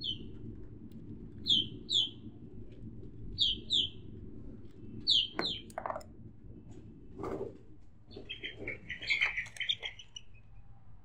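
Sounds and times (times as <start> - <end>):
bird chirping: 0.0 - 0.3, 1.4 - 2.2, 3.4 - 4.0, 5.0 - 5.8, 8.1 - 10.6
low steady hum: 0.0 - 11.0.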